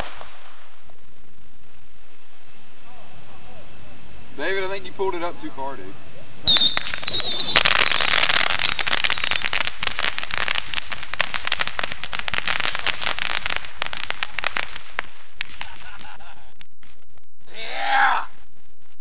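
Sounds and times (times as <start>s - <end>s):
firework crackling: 0.0s - 19.0s
high firework whistle: 6.5s - 10.0s.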